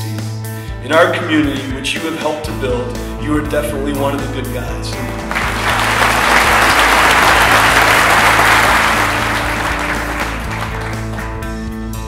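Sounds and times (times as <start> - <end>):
background music: 0.0 - 12.0
audience applauding: 5.1 - 11.5.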